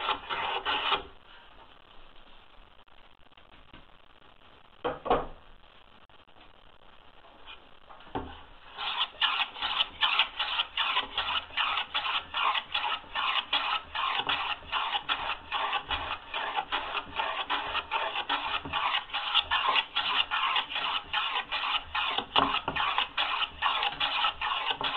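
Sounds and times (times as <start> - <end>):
hand plane shaving wood: 0.0 - 1.0, 8.7 - 24.9
knocks or scrapes: 0.0 - 1.2, 7.4 - 24.9.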